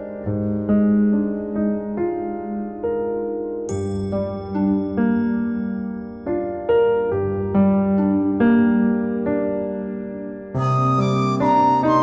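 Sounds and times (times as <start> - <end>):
gentle keyboard music: 0.0 - 12.0
bell-like chord: 3.6 - 6.6.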